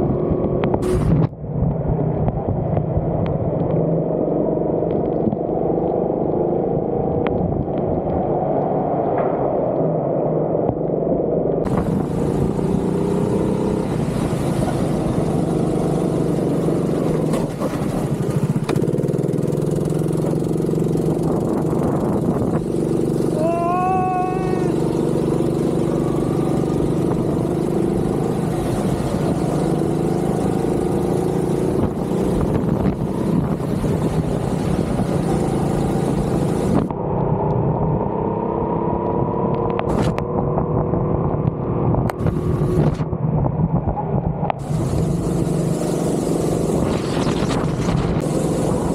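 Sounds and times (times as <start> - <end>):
go-kart engine running: 11.7 - 37.2, 44.6 - 48.9.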